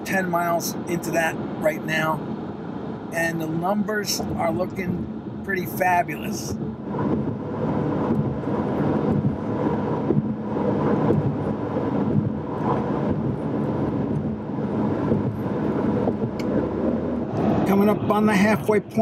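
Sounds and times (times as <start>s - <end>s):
low engine hum: 0.0s - 19.0s
tyre and wind noise: 6.3s - 19.0s.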